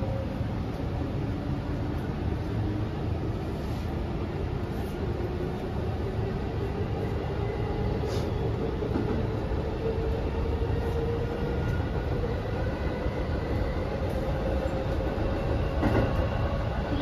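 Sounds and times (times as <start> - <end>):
train wheel and rail rumble: 0.0 - 17.0.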